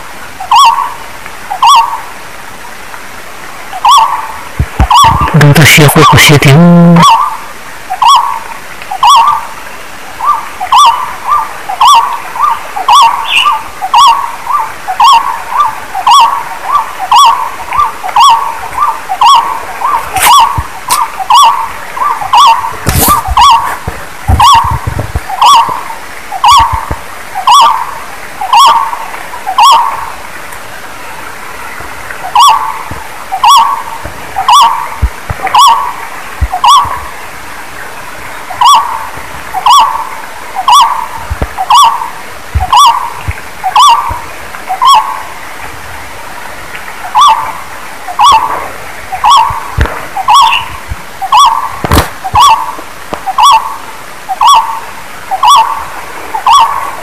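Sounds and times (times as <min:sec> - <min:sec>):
bird calling hollow notes: 0:03.8 - 0:07.4, 0:09.0 - 0:09.5, 0:10.2 - 0:30.1, 0:32.2 - 0:37.1, 0:38.6 - 0:45.2, 0:47.1 - 0:47.5, 0:48.1 - 0:55.8, 0:56.4 - 0:56.9.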